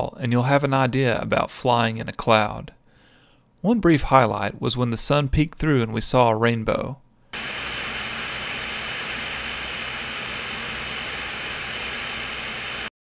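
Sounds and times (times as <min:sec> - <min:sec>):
aircraft engine and propeller drone: 0:07.4 - 0:12.9
rushing airflow: 0:07.4 - 0:12.9.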